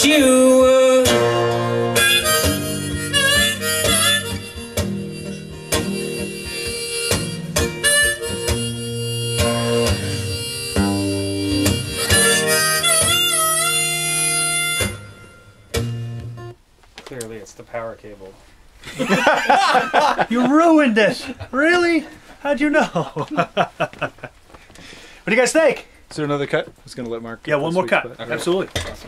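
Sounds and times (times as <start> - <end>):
blues harmonica: 0.0 - 16.6
guitar accompaniment: 0.0 - 16.6.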